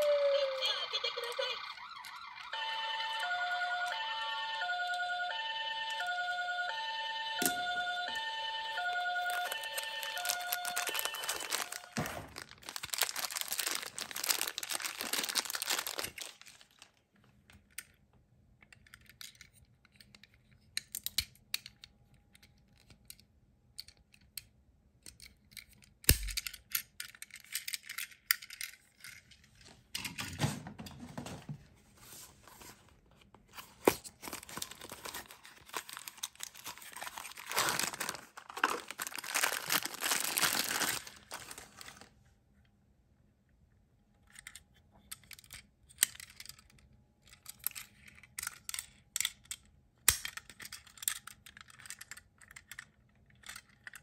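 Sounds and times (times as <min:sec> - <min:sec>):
plastic wrapper crinkling: 0:09.1 - 0:17.0, 0:33.5 - 0:42.1.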